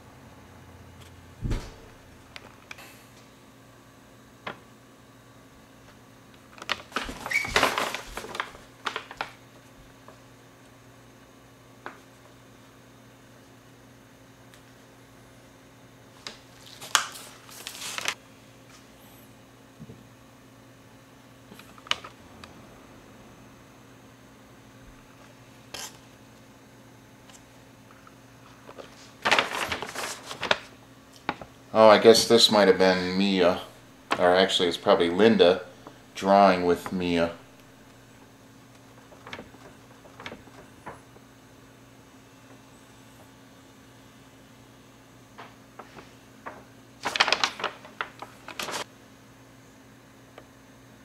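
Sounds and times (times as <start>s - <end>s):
faint low electrical hum: 0.0s - 51.0s
paper rustling and crinkling: 6.5s - 10.2s, 16.3s - 18.2s, 28.5s - 31.5s, 38.7s - 41.2s, 45.8s - 48.9s.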